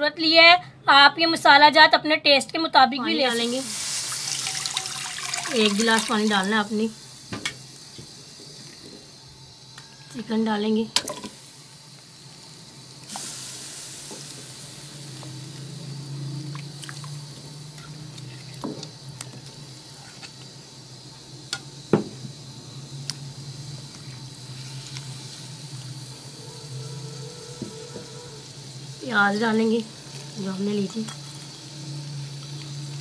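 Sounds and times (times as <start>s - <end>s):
steady hiss: 3.0s - 33.0s.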